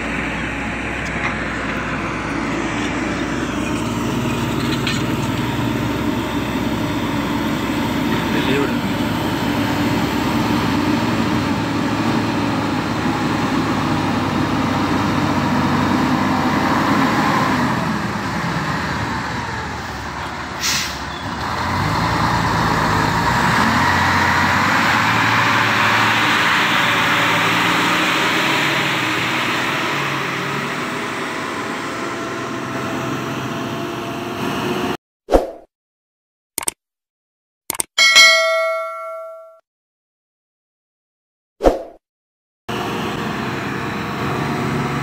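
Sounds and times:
truck diesel engine pulling uphill: 0.0 - 35.0, 42.7 - 45.0
short hiss: 20.6 - 21.0.

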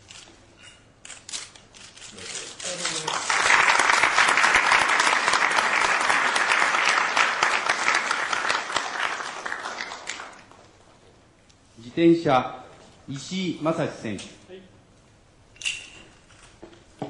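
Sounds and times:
crowd applauding: 2.7 - 10.6.

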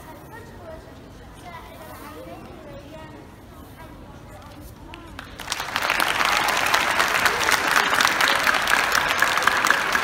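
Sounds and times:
children applauding: 5.4 - 10.0.

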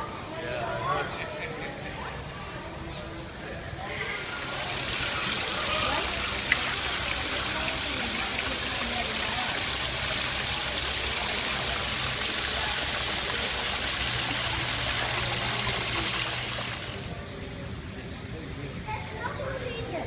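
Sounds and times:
waterfall splashing into a pool: 4.2 - 17.2.

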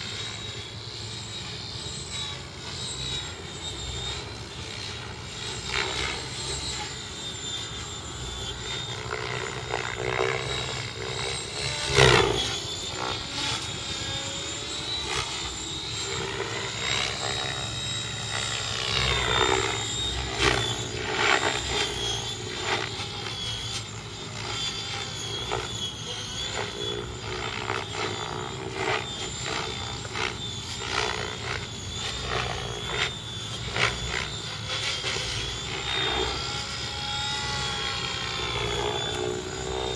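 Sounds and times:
electric motor whine: 0.0 - 39.9
rotor blades swishing: 0.0 - 39.9.

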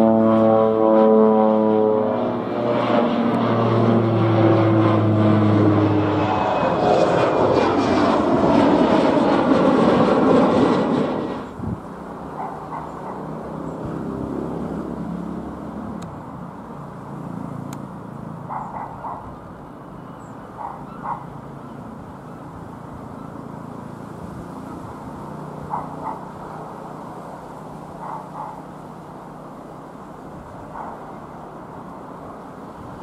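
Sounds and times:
light aircraft engine drone: 0.0 - 33.0
animal calls: 20.6 - 21.3.

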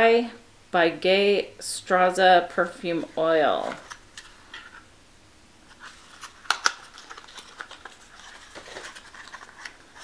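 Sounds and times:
cardboard rustling and scraping: 5.7 - 10.0.

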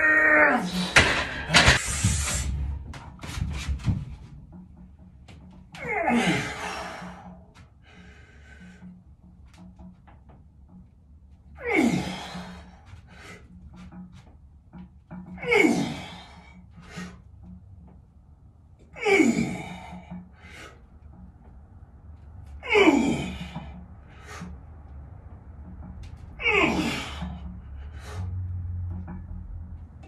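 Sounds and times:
man breathing forcefully: 0.7 - 2.7, 19.4 - 21.0, 23.1 - 24.7, 26.5 - 28.5.

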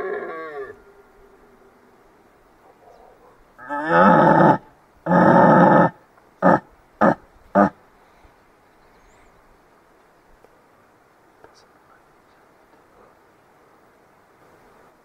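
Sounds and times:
elk bugling: 0.0 - 7.8.

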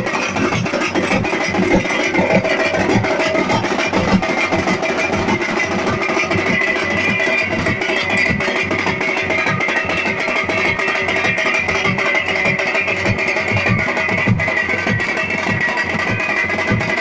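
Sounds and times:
drums beating steady rhythm: 0.0 - 17.0
festival music: 0.0 - 17.0.

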